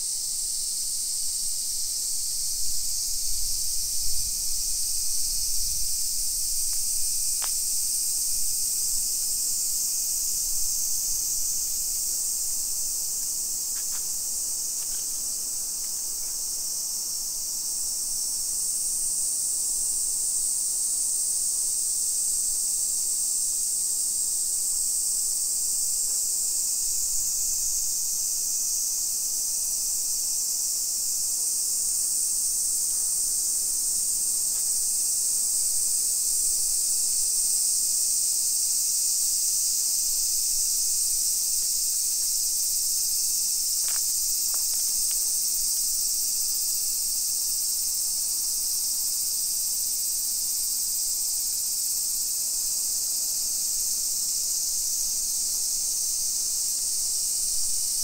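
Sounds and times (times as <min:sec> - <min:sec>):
cicadas droning: 0:00.0 - 0:58.0
faint ticks: 0:06.6 - 0:07.6.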